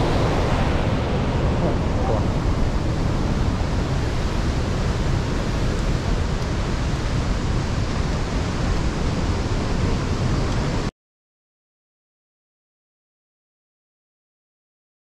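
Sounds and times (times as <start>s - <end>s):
waterfall roaring: 0.0s - 10.9s.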